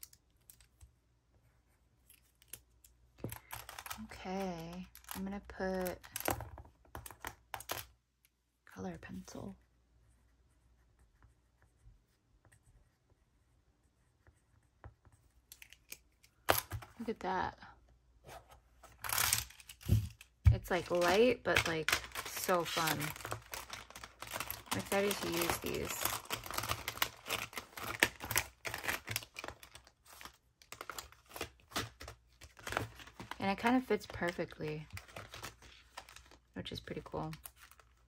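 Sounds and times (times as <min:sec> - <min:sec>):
colored pencil scratching on paper: 0:09.5 - 0:15.4
plastic rustling: 0:19.0 - 0:36.5.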